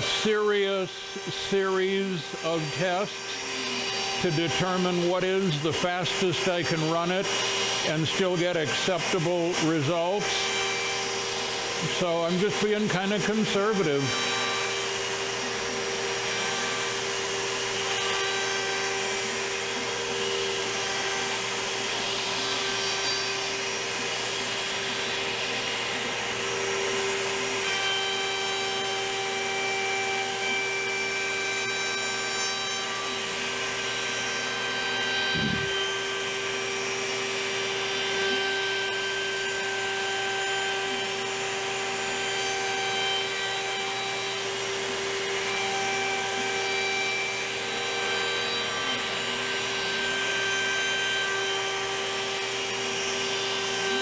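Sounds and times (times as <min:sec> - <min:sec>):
router spindle whine milling wood: 0:00.0 - 0:54.0
vacuum hose rushing: 0:35.2 - 0:35.8.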